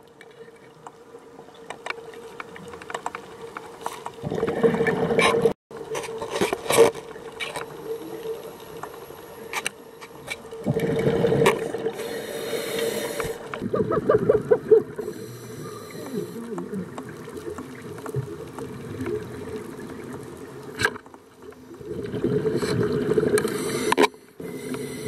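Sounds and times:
clicks and crackles: 0.0s - 12.1s, 12.7s - 24.8s
exhaled regulator bubbles: 21.8s - 24.0s.

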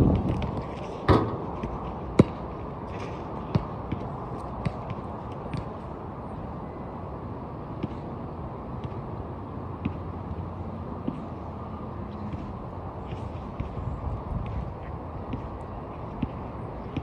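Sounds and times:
basketball bouncing on court: 0.0s - 2.5s, 3.4s - 5.8s
low background noise: 0.0s - 17.0s.

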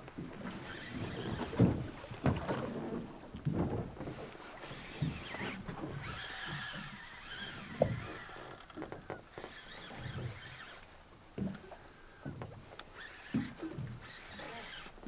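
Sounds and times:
fishing reel drag squealing: 0.6s - 1.6s, 4.6s - 11.2s, 12.9s - 15.0s.

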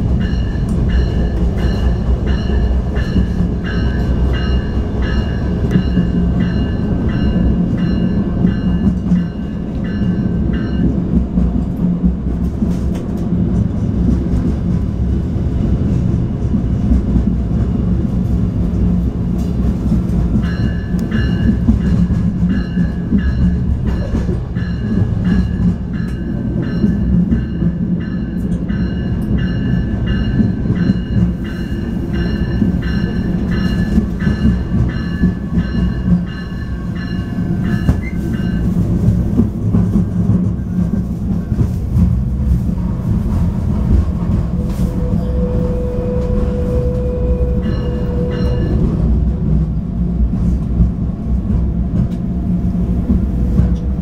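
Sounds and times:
train engine and wheels rumbling: 0.0s - 54.0s
bell ringing: 46.9s - 48.9s.

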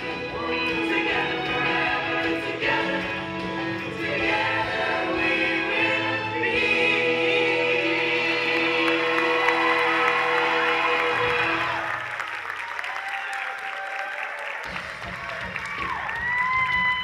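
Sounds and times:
cast singing in chorus: 3.9s - 11.9s.

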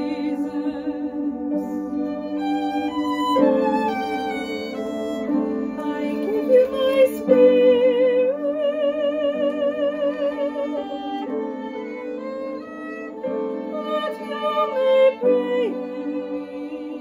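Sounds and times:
choir singing a hymn: 0.0s - 17.0s.

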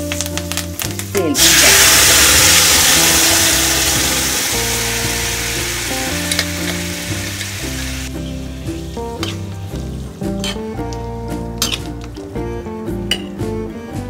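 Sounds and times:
beans sizzling in hot oil: 0.0s - 10.6s.

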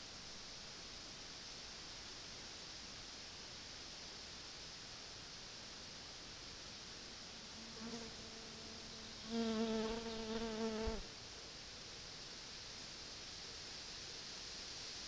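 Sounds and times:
steady hiss: 0.0s - 15.0s
insect buzzing: 7.4s - 11.2s.

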